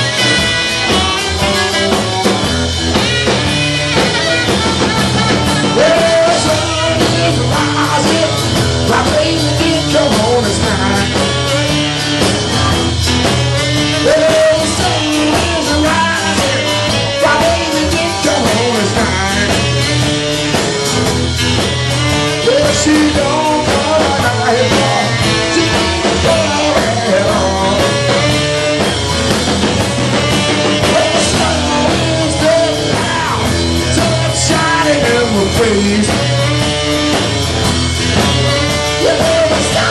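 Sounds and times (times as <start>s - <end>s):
rock and roll band playing: 0.0s - 39.9s
tenor saxophone: 0.0s - 39.9s
man singing: 5.3s - 12.3s, 13.3s - 20.7s, 21.9s - 29.1s, 29.8s - 37.3s, 38.1s - 39.9s.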